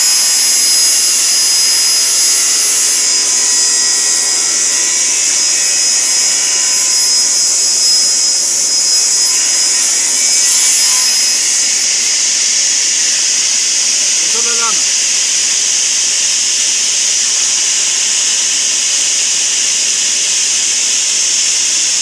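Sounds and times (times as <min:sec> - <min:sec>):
panel saw cutting wood: 0:00.0 - 0:15.2.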